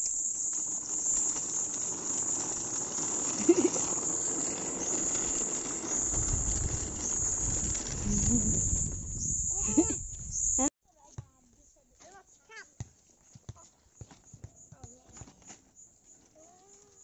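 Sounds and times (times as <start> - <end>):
crickets chirring: 0.0 - 10.7.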